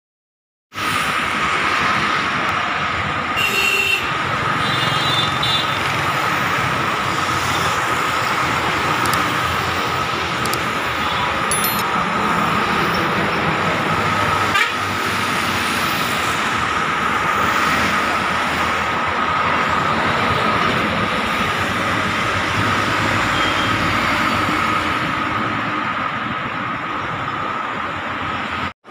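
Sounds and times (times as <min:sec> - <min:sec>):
roadside traffic noise: 0:00.7 - 0:28.9
sharp click: 0:09.0 - 0:09.4, 0:10.4 - 0:10.7.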